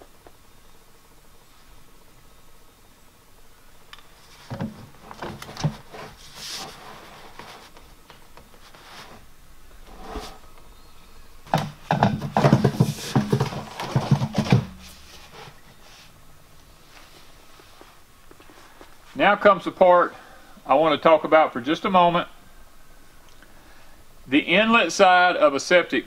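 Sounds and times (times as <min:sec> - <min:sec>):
plastic knocks and rubbing: 0:04.4 - 0:07.7, 0:11.5 - 0:15.4
dauber scrubbing on pipe: 0:05.6 - 0:07.8, 0:12.6 - 0:13.4.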